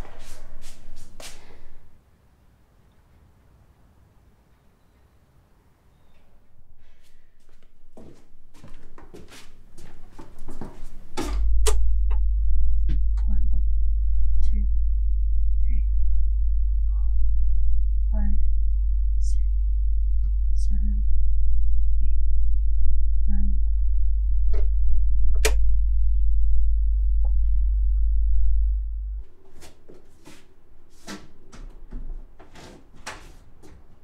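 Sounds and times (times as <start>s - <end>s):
deep steady drone: 0.0s - 2.0s, 6.4s - 9.0s, 9.6s - 29.5s.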